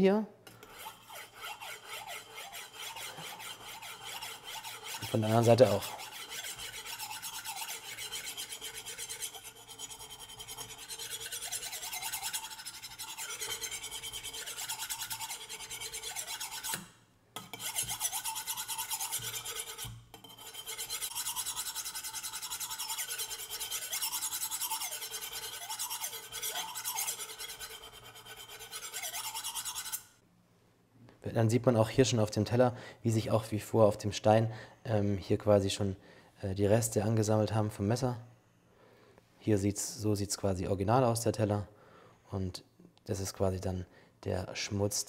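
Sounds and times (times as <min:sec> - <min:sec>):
knife rasping on ceramic plate: 0:00.5 - 0:30.1.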